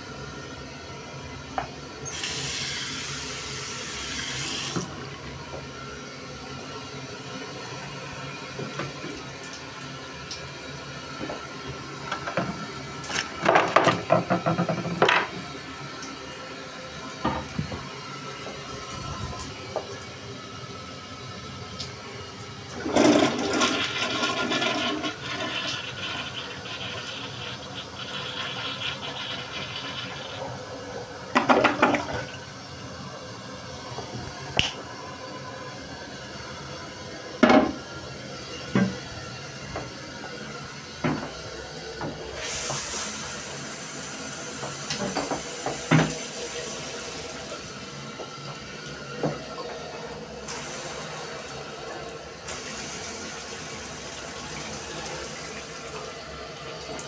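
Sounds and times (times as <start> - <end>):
toilet flushing: 0.0 - 57.0
toilet tank refilling hiss: 2.0 - 5.2, 15.4 - 32.8, 38.9 - 57.0
shower water spraying: 2.1 - 4.9, 42.4 - 48.2, 50.5 - 57.0.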